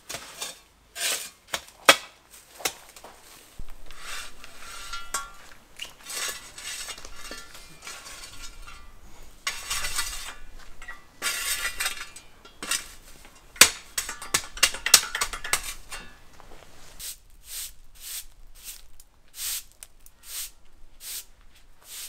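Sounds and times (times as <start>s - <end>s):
spade scraping into gravel: 0.0s - 21.2s
spade clinking on stones: 3.9s - 16.2s.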